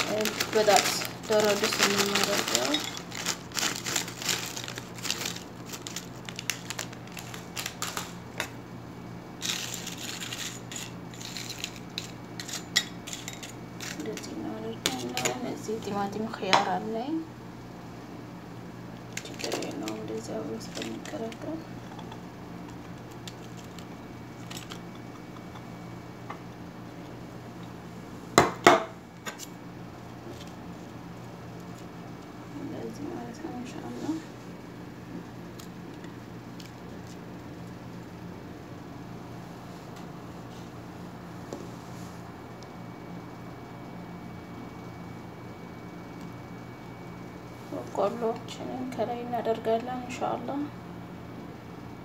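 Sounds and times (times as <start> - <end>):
plastic snack bag crinkling: 0.0 - 8.6, 9.4 - 14.3, 19.1 - 21.6, 22.6 - 25.0
tortilla chips crackling: 0.0 - 8.6, 9.4 - 14.3, 19.0 - 21.6, 22.5 - 25.6
china plate clattering: 0.2 - 4.4.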